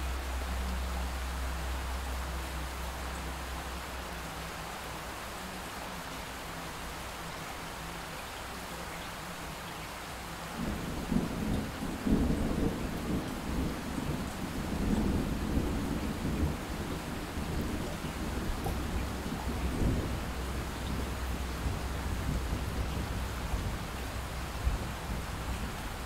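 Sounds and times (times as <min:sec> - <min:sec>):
steady rain: 0:00.0 - 0:26.0
rolling thunder rumble: 0:10.6 - 0:26.0.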